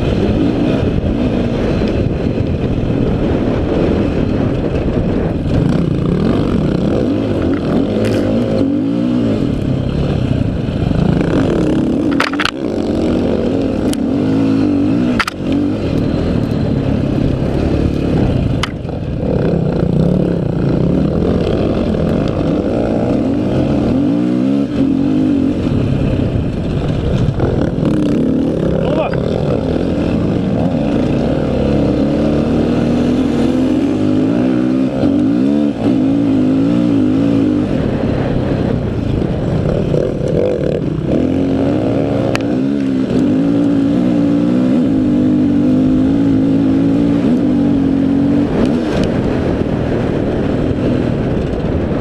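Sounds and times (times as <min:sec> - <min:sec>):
dirt bike engine revving: 0:00.0 - 0:50.6.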